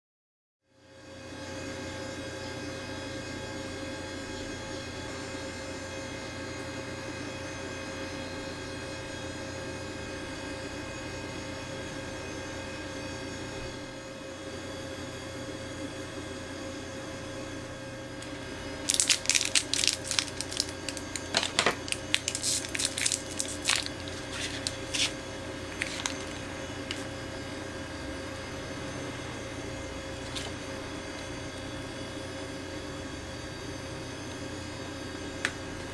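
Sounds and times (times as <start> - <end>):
steady electrical hum: 17.4 - 35.9
foil packet crinkling: 18.8 - 27.1.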